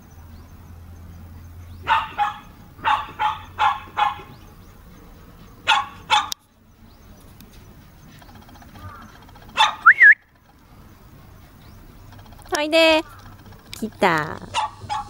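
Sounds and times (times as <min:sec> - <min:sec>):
dog barking: 0:01.8 - 0:04.4, 0:05.6 - 0:06.4, 0:09.6 - 0:09.9, 0:14.5 - 0:15.0.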